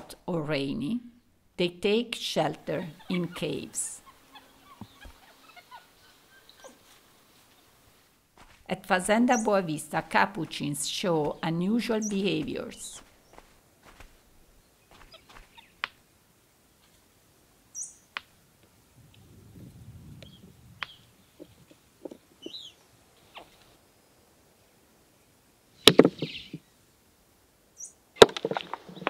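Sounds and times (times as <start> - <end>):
faint bird chirps: 2.9 - 7.8, 14.6 - 15.8, 17.7 - 18.1, 22.4 - 23.6, 26.2 - 26.7.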